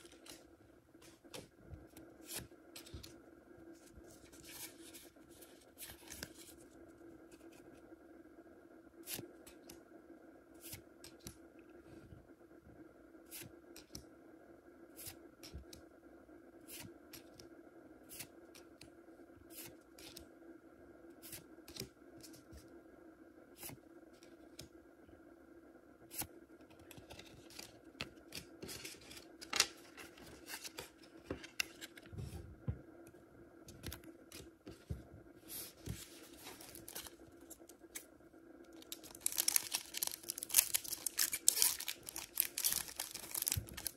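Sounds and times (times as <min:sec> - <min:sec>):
steady low hum: 0:00.0 - 0:43.9.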